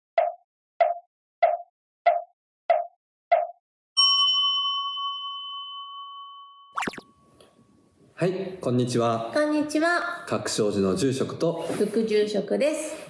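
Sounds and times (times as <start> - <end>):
bowl bell ringing: 4.0 - 7.8.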